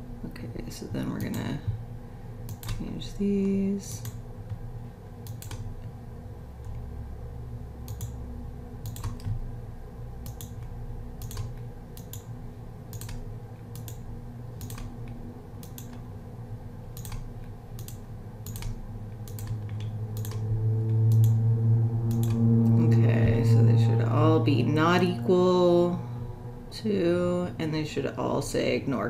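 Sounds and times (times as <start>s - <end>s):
steady low hum: 0.0s - 29.0s
computer mouse clicking: 2.5s - 4.6s, 5.2s - 5.9s, 7.9s - 8.2s, 8.8s - 9.4s, 10.2s - 12.3s, 12.9s - 14.0s, 14.6s - 16.1s, 17.0s - 20.5s, 21.1s - 21.4s, 22.1s - 22.4s.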